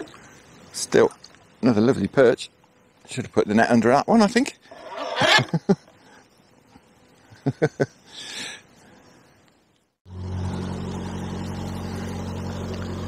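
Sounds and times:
boat engine droning: 10.1 - 13.0.

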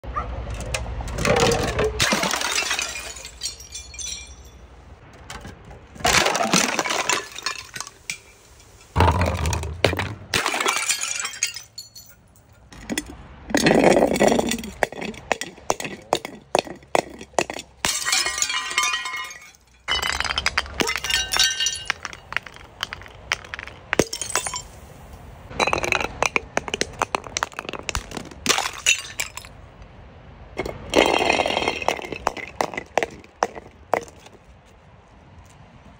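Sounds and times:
glass breaking: 1.2 - 4.7, 6.0 - 12.2, 12.8 - 24.8, 25.5 - 29.5, 30.6 - 34.2
clinking glass shards: 1.3 - 4.7, 10.4 - 15.2, 17.1 - 24.8.

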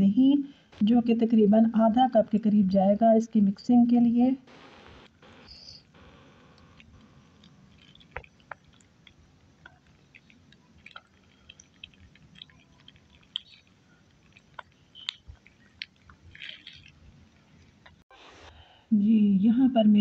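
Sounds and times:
wet yogurt squishes: 6.6 - 18.0.

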